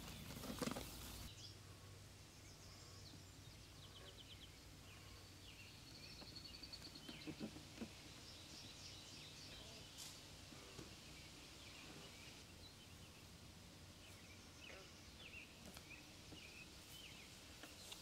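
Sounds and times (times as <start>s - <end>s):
distant bird chirps: 0.0s - 13.4s.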